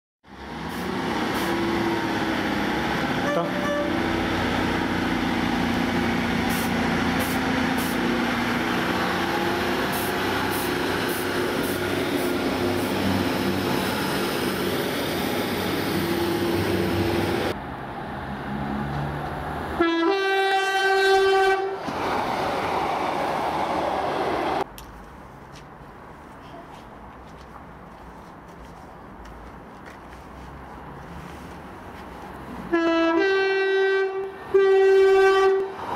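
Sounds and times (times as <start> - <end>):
train droning past: 0.3 - 24.6, 32.5 - 35.9
two-tone train horn: 3.2 - 4.1, 19.8 - 21.8, 32.7 - 35.8.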